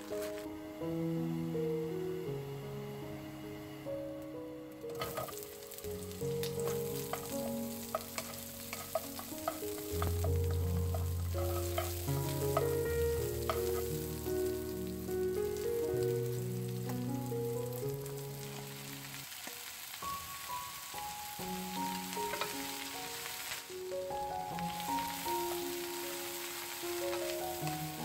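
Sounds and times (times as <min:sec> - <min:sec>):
background music with held notes: 0:00.0 - 0:28.0
onions sizzling in oil: 0:04.7 - 0:28.0
wooden spatula scraping pan: 0:04.9 - 0:05.6, 0:06.3 - 0:14.2.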